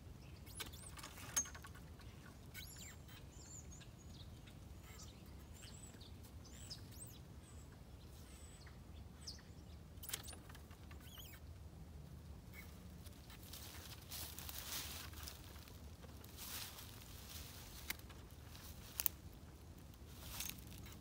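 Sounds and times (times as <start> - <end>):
birds chirping faintly: 0.0 - 21.0.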